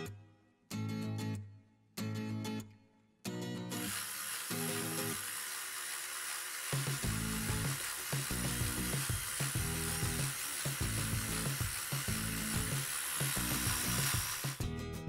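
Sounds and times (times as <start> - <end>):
background music with steady beat: 6.8 - 15.0.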